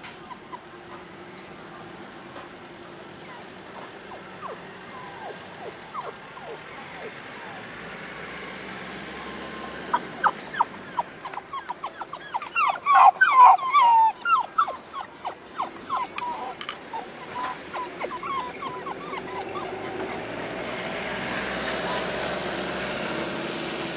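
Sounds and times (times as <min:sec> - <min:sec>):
puppy whining and yelping: 0:00.0 - 0:00.8, 0:03.2 - 0:07.6, 0:09.2 - 0:20.6.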